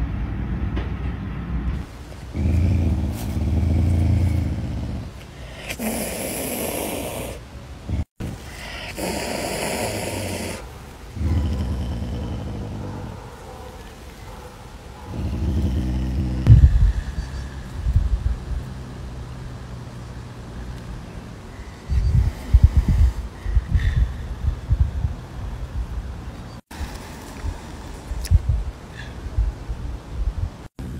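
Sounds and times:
wild cat growling: 1.8 - 13.9, 15.0 - 16.7
wild cat hissing: 1.8 - 14.0, 15.1 - 17.7.

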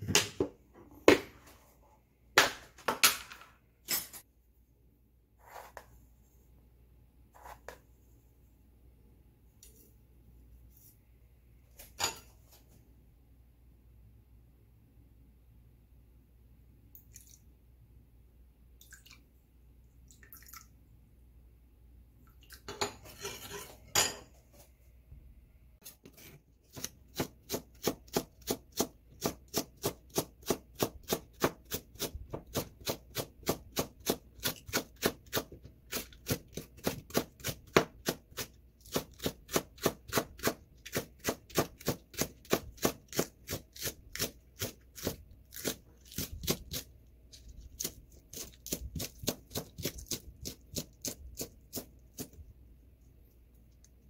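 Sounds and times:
spoon scraping bowl: 5.4 - 6.0, 22.7 - 24.0
knife chopping on plastic board: 26.7 - 46.8, 47.8 - 52.4.

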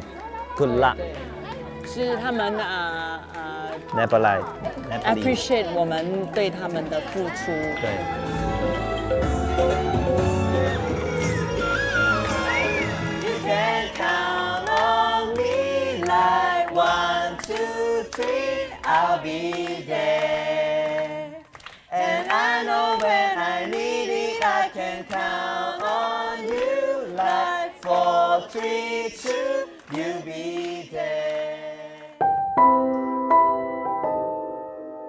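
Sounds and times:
group singing in unison: 8.8 - 32.2.

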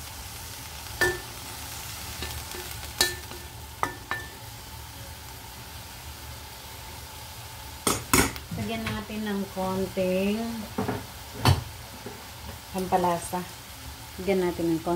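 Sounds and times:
food sizzling in a pan: 0.0 - 14.9.

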